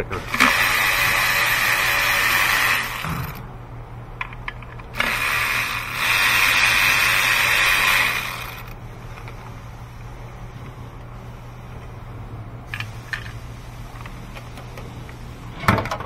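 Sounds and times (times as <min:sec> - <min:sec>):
power ratchet whirring: 0:00.0 - 0:03.5, 0:04.8 - 0:09.3.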